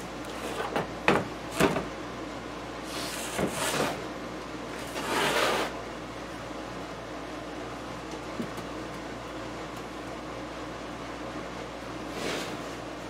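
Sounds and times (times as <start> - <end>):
cabinet scraping across surface: 2.9 - 4.0, 4.8 - 5.8, 12.1 - 12.8.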